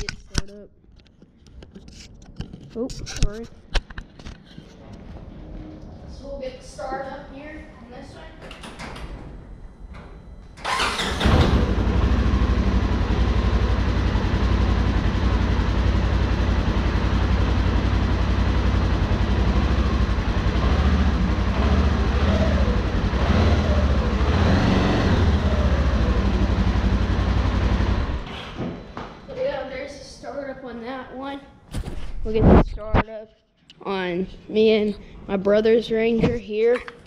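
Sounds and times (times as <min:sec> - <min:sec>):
engine cranking: 0:10.6 - 0:12.1
engine idling: 0:10.6 - 0:28.4.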